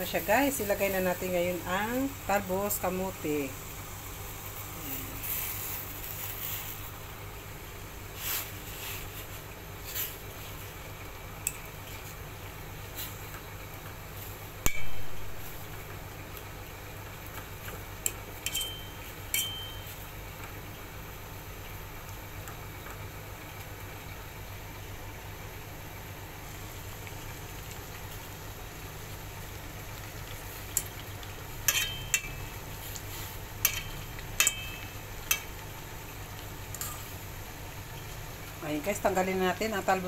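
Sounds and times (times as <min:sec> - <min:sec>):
fork clinking against steel pan: 0:18.4 - 0:19.9, 0:31.7 - 0:32.4, 0:33.6 - 0:35.5.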